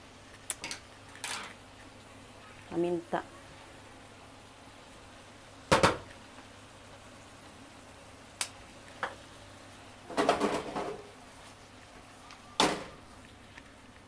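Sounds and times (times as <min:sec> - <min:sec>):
food simmering in a frying pan: 0:00.0 - 0:14.0
knocks against a pan: 0:05.7 - 0:06.1, 0:10.1 - 0:11.0.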